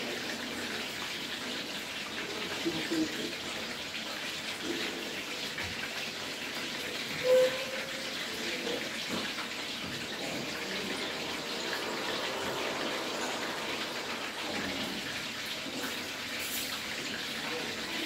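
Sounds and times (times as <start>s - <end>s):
food sizzling in oil: 0.0s - 18.0s
short squeak: 7.2s - 8.1s.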